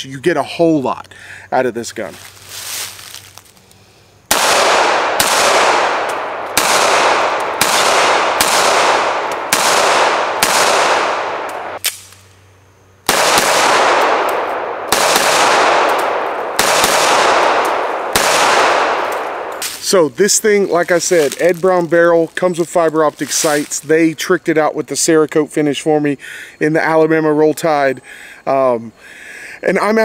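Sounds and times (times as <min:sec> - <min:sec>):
pistol shots with echo: 0:04.3 - 0:11.8, 0:13.1 - 0:19.7.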